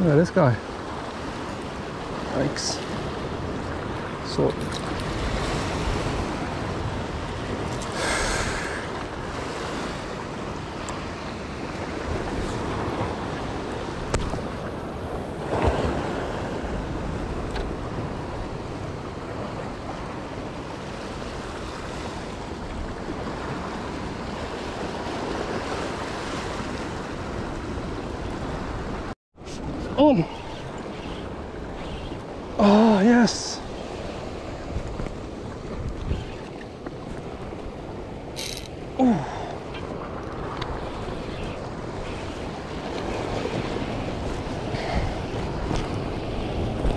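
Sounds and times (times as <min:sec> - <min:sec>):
waves breaking on rocks: 0:00.0 - 0:36.0
wind buffeting microphone: 0:33.6 - 0:39.0, 0:39.6 - 0:46.9.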